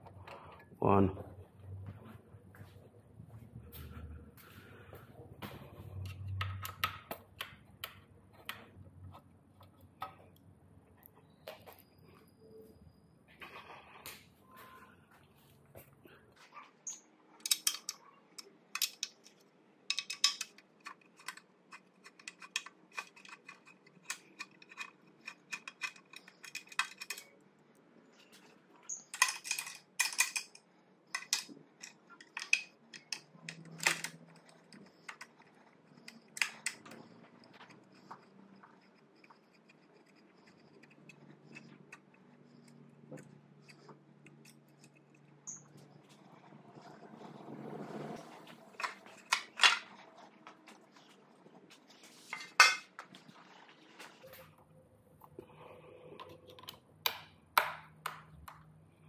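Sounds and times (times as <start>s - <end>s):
metal tools clinking: 28.9s - 30.6s.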